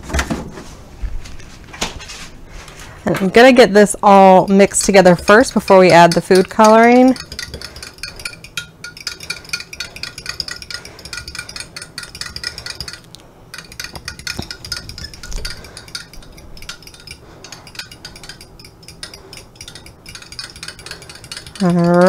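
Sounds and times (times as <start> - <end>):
metal whisking against glass: 4.5 - 22.0.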